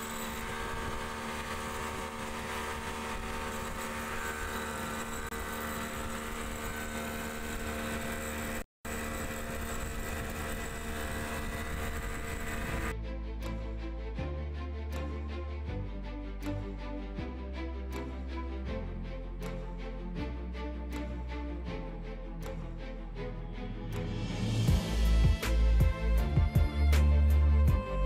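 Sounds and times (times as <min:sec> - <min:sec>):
outboard motor drone: 0:00.0 - 0:13.0
wind: 0:00.0 - 0:13.6.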